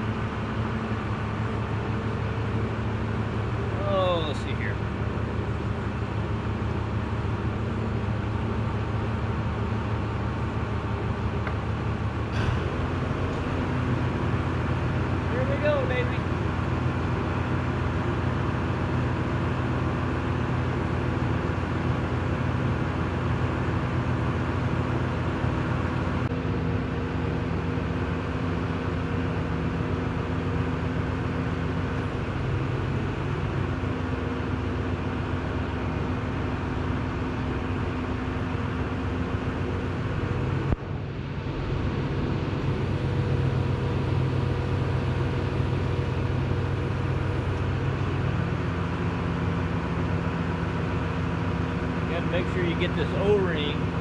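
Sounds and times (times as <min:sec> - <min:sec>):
truck engine running: 0:00.0 - 0:54.0.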